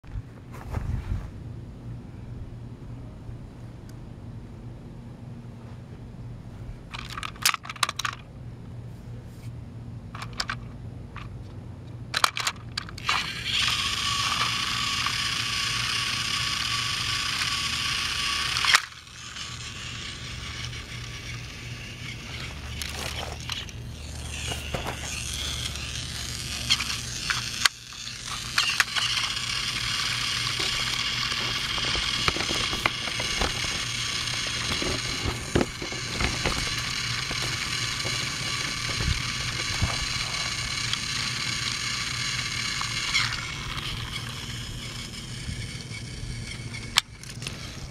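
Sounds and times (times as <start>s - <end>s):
toy train motor whirring: 6.9s - 8.2s, 10.1s - 10.6s, 12.2s - 47.9s.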